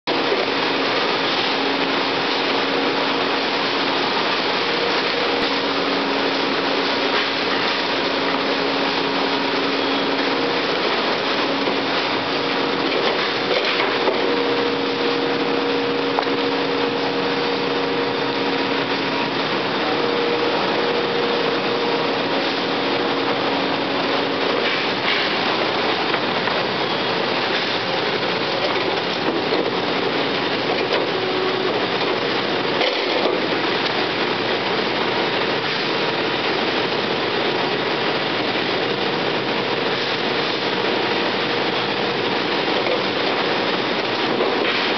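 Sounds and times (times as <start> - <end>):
paper cutter machine running: 0.0 - 44.9.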